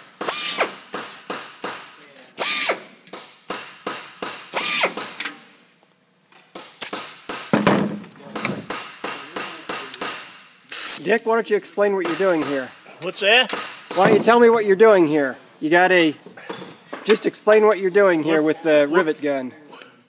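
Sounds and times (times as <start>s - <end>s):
pneumatic rivet gun bursts: 0.0s - 5.4s, 6.6s - 7.6s, 8.6s - 11.1s.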